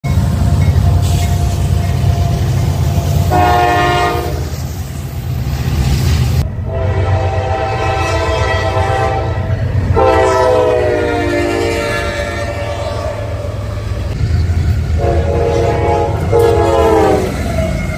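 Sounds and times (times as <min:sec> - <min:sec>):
diesel locomotive engine rumble: 0:00.0 - 0:17.9
locomotive horn blasts: 0:03.2 - 0:04.6, 0:06.6 - 0:13.5, 0:15.0 - 0:17.9.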